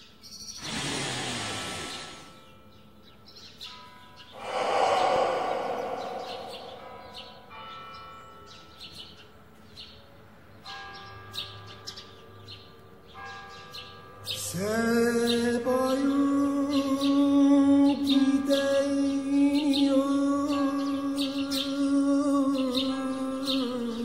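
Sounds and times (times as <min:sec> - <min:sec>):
bird chirps: 0:03.2 - 0:09.1.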